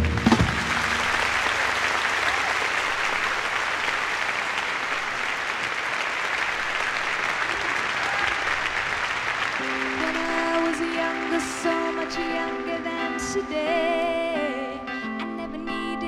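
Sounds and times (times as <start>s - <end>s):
concert audience applauding: 0.0s - 13.2s.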